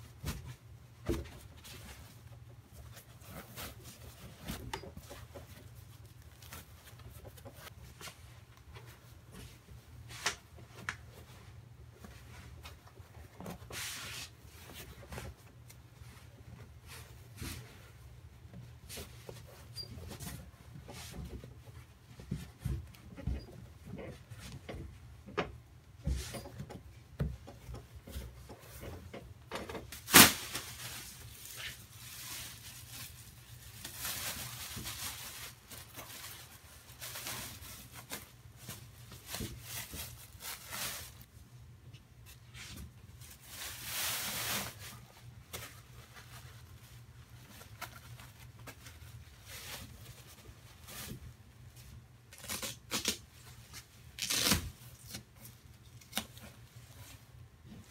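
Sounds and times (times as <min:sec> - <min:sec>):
thumps and scuffing of fabric: 0:00.1 - 0:11.3
plastic bag rustling: 0:29.9 - 0:41.3, 0:42.6 - 0:52.9.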